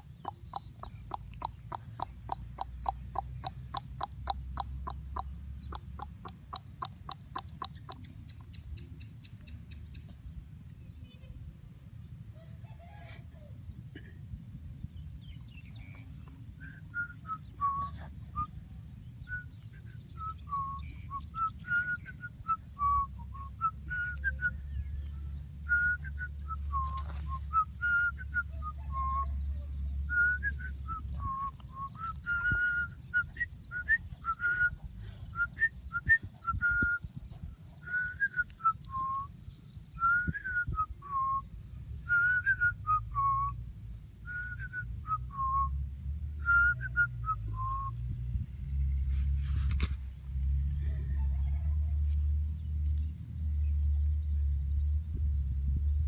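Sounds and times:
person whistling a tune: 16.6 - 18.5, 19.2 - 24.7, 25.7 - 29.2, 30.1 - 37.2, 37.9 - 39.3, 40.0 - 41.4, 42.1 - 43.6, 44.2 - 45.8, 46.4 - 47.9.

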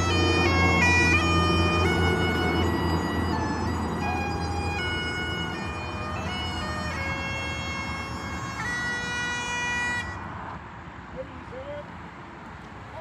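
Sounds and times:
bagpipes playing: 0.0 - 10.4.

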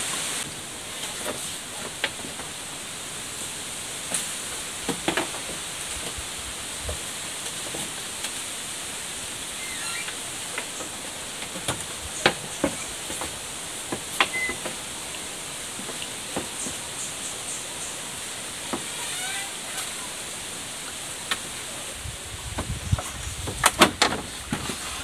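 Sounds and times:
steady high hiss: 0.0 - 25.0
bamboo poles knocking: 4.8 - 6.2, 10.6 - 14.8.

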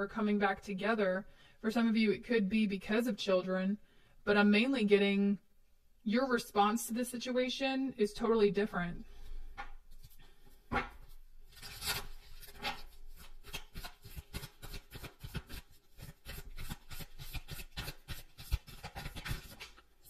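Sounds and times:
cards being shuffled: 9.6 - 19.9.

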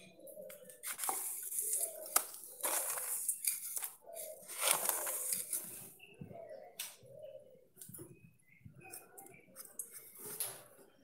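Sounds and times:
plastic packet crinkling: 0.8 - 5.6.

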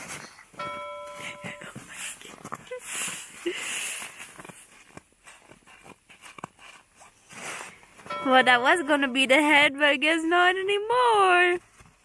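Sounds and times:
snowsuit rustling: 0.0 - 8.0
snow crunching: 0.0 - 12.0.

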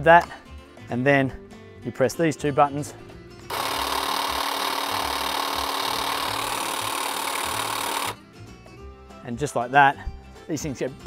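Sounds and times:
hedge trimmer buzzing: 3.5 - 8.2.

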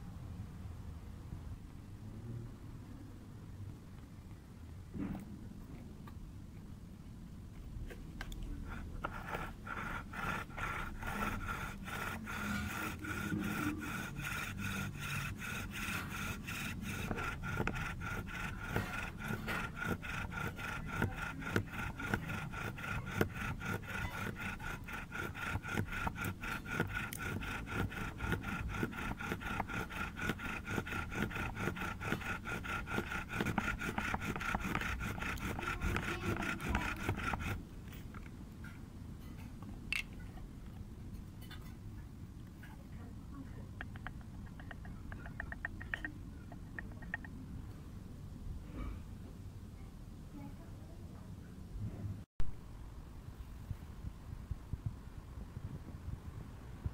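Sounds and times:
rhythmic wooden rubbing strokes: 8.6 - 38.2, 43.8 - 47.4.

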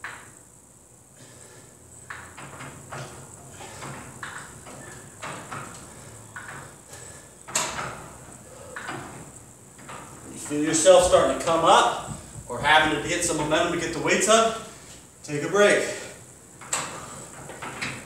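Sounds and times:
person breathing hard: 1.1 - 1.9, 5.8 - 7.4.

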